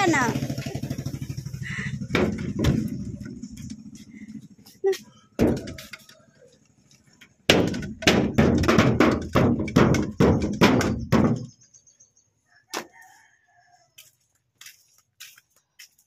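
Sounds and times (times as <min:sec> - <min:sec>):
heavy thuds: 0:01.6 - 0:03.9.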